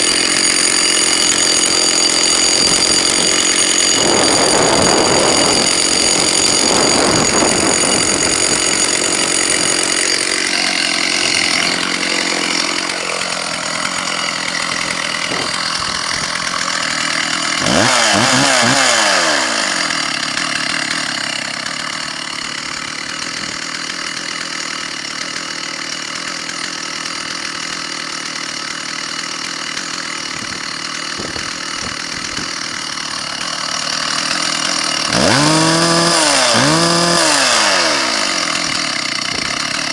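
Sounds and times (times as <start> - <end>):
chainsaw idling and revving: 0.0 - 39.9.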